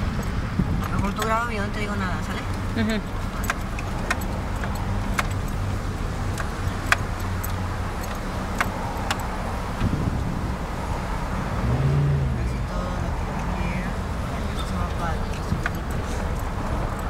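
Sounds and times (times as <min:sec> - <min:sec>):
sharp clicks and rattles: 0:00.0 - 0:10.0, 0:14.2 - 0:17.0
car engine running: 0:00.0 - 0:17.0.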